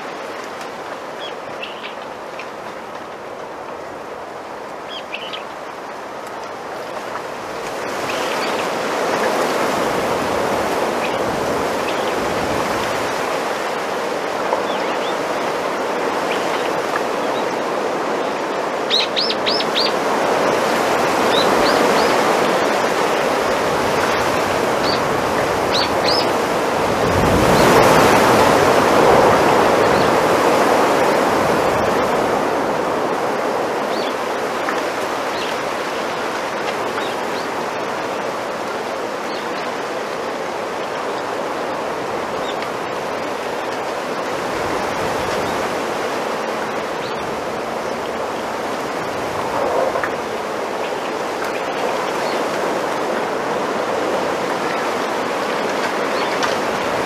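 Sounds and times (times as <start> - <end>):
wind rustling bamboo leaves: 0.0 - 57.0
small birds chirping: 1.2 - 2.5, 4.9 - 5.5, 18.9 - 20.0, 21.2 - 22.2, 25.7 - 26.4.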